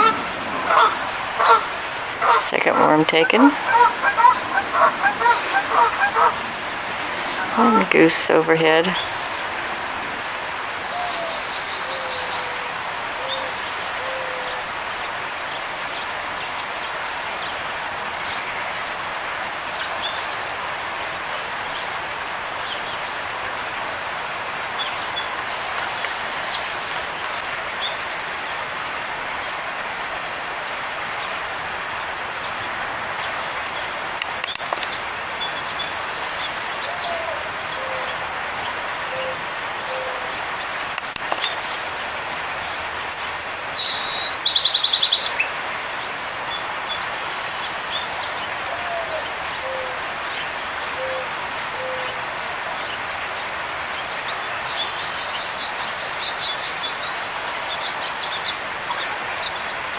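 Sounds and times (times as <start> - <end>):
songbirds chirping and trilling: 0.0 - 23.6, 32.0 - 59.9.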